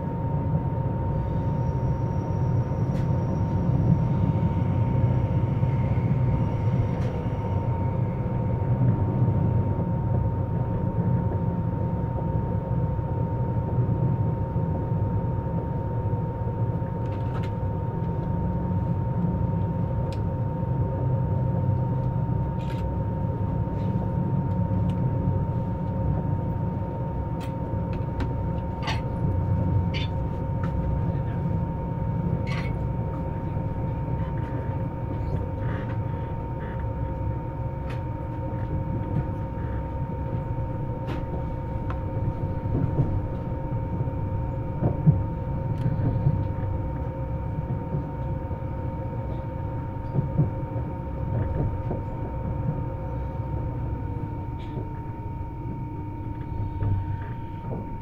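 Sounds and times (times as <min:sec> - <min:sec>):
low rumble of train running: 0:00.0 - 0:58.0
train inverter braking tones: 0:01.2 - 0:08.8.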